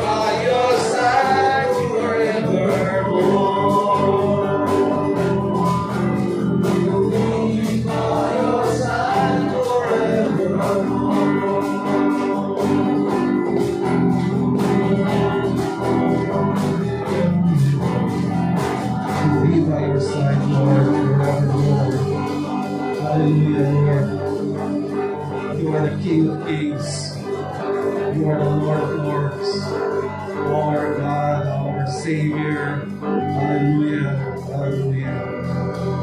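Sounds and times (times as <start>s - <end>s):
man singing: 0.0s - 17.9s, 19.0s - 36.0s
acoustic guitar: 0.0s - 36.0s
electric guitar: 0.0s - 36.0s
keyboard: 0.0s - 36.0s
steady beat: 0.0s - 36.0s.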